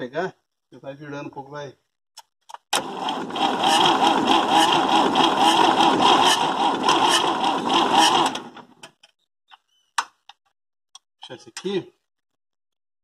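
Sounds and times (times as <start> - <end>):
starter cranking diesel engine: 2.8 - 8.8.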